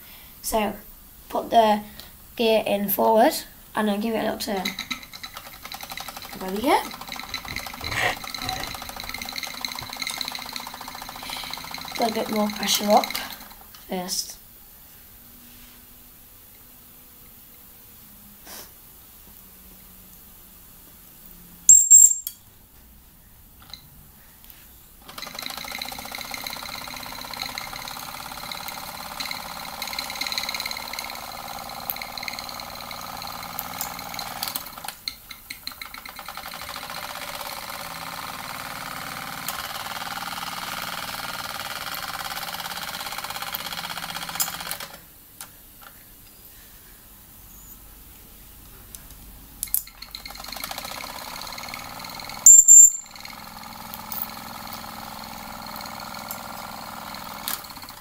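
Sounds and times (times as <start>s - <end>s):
toy steam engine chuffing: 4.6s - 13.6s, 25.1s - 34.8s.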